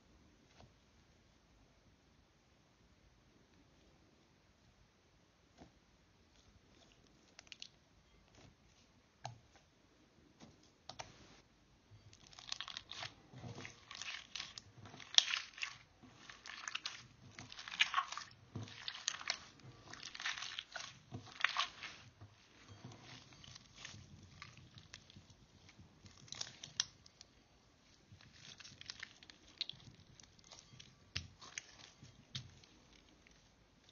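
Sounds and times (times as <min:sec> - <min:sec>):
slime crackling and popping: 0:12.0 - 0:27.4, 0:28.1 - 0:33.9.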